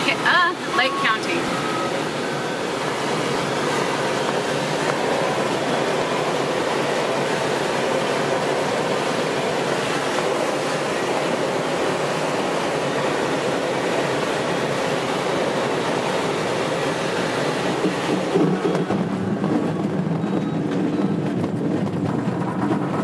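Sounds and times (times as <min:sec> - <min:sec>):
rush of air over glider canopy: 0:00.0 - 0:23.0.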